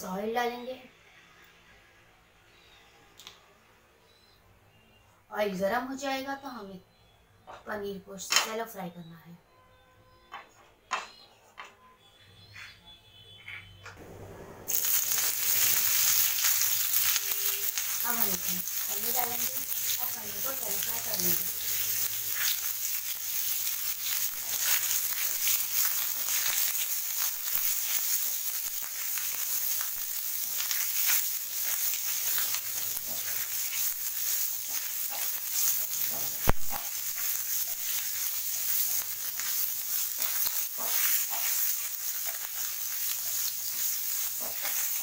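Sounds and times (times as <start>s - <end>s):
food sizzling in hot oil: 14.7s - 45.0s
spatula stirring in pan: 14.8s - 45.0s.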